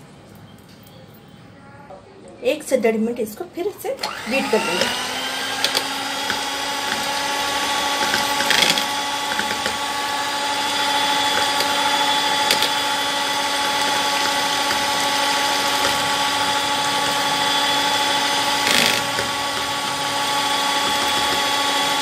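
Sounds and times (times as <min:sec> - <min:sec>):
electric hand mixer whisking: 0:04.0 - 0:22.0
mixer clicks: 0:04.0 - 0:22.0.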